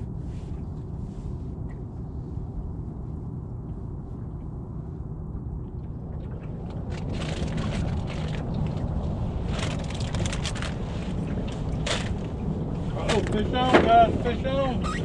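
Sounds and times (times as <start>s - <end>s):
rustling and light knocks in boat: 0.0s - 2.7s, 6.3s - 15.0s
wind rumble on microphone: 0.0s - 15.0s.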